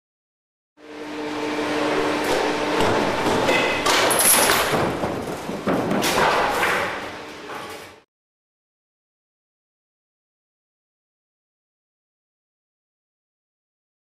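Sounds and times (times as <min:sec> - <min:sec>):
steady hum: 0:00.8 - 0:08.0
sharp knocks: 0:02.3 - 0:07.0.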